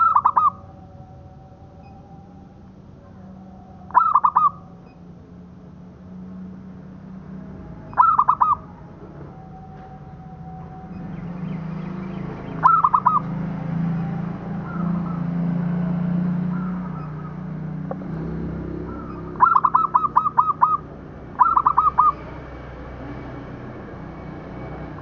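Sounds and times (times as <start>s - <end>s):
dove cooing: 0.0s - 0.8s, 1.7s - 5.0s, 7.7s - 9.8s, 10.9s - 13.4s, 16.4s - 18.2s, 18.8s - 22.3s.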